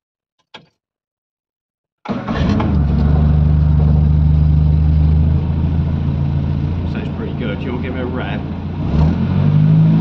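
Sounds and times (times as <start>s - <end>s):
car engine running: 2.6s - 9.4s.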